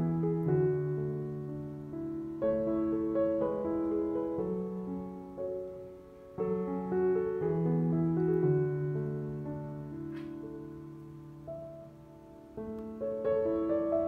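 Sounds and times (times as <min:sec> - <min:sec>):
piano chords ringing: 0:00.0 - 0:14.0.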